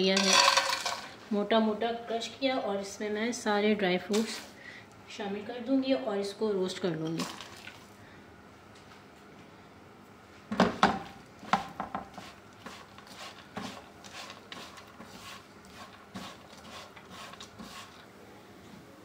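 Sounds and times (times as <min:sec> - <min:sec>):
spatula scraping in frying pan: 0:12.1 - 0:18.1.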